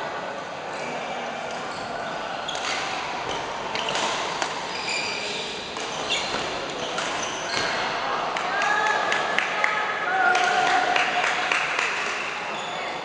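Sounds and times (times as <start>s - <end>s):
busy hall noise: 0.0s - 13.0s
shoes squeaking on court floor: 1.4s - 8.0s, 12.5s - 13.0s
rackets hitting shuttlecock: 2.5s - 4.6s, 5.7s - 7.8s.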